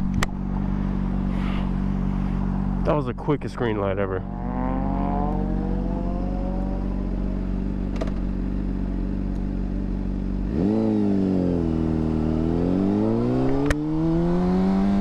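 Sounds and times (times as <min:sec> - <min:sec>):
motorcycle engine idling and revving: 0:00.0 - 0:15.0.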